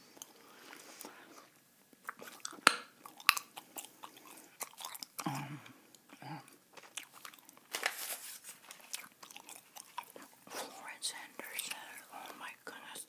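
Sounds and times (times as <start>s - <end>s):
wet gum chewing: 0.1s - 7.7s, 8.7s - 10.5s
gum snaps and clicks: 2.0s - 3.9s.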